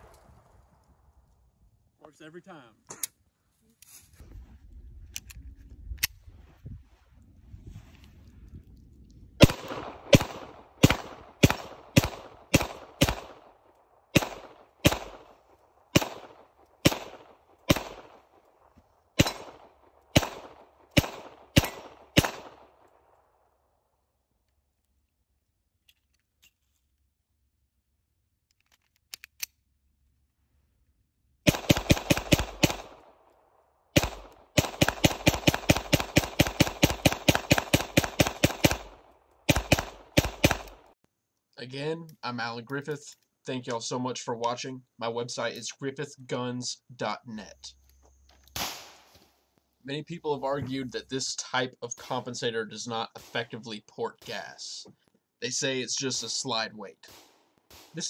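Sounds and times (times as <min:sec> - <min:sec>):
pistol shots ringing: 0:14.1 - 0:15.3, 0:15.9 - 0:18.2, 0:19.2 - 0:22.6
pistol handling clicks: 0:28.5 - 0:29.6.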